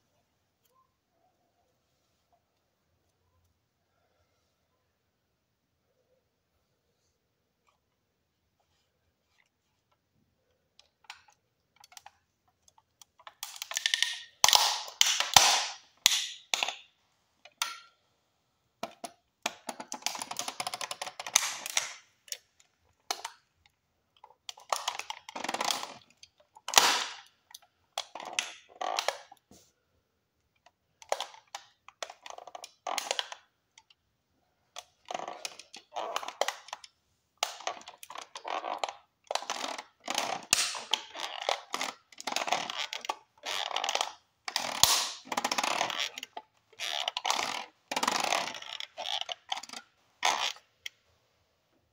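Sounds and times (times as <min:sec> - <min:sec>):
toy car cracking under foot: 0:13.0 - 0:16.9, 0:18.8 - 0:22.5, 0:24.5 - 0:29.4, 0:31.0 - 0:33.5, 0:34.8 - 0:50.6.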